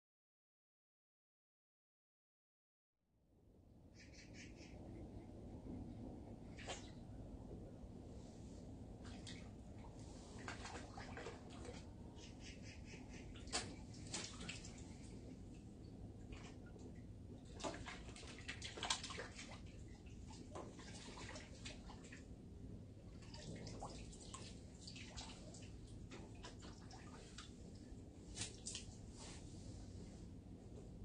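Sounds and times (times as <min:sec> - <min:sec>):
fish splashing in water: 0:10.2 - 0:11.9, 0:13.2 - 0:15.2, 0:17.5 - 0:22.1.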